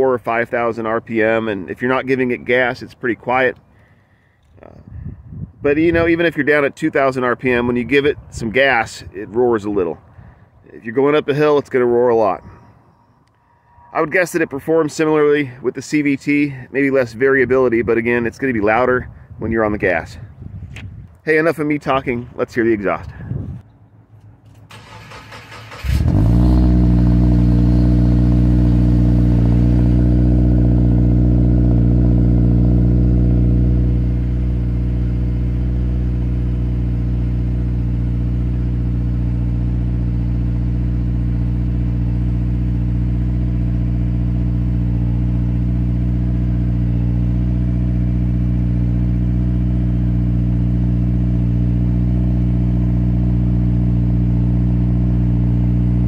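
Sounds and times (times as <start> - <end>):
engine cranking: 24.5 - 26.4.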